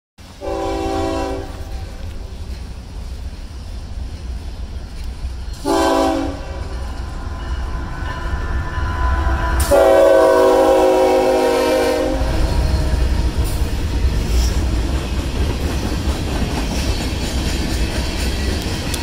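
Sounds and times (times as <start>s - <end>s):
freight train rumbling past: 0.2s - 19.0s
locomotive air horn blasts: 0.4s - 2.0s, 5.6s - 6.7s, 9.0s - 13.0s.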